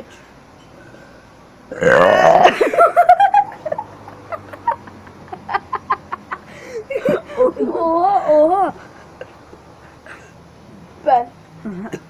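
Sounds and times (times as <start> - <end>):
loud burp: 1.7 - 2.7
boy laughing: 2.3 - 10.3.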